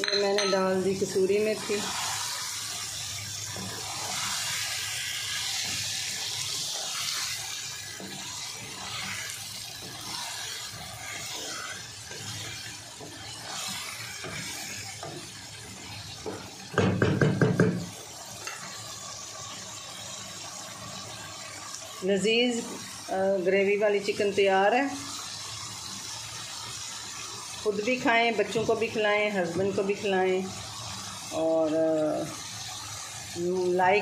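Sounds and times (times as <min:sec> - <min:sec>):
gravy sizzling in a pan: 0:00.0 - 0:34.0
wooden spoon stirring: 0:03.4 - 0:16.8.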